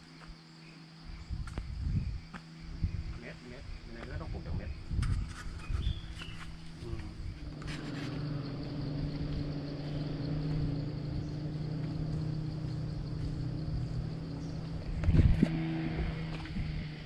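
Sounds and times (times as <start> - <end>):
rough low rumble: 1.1 - 17.0
small engine running: 5.1 - 17.0.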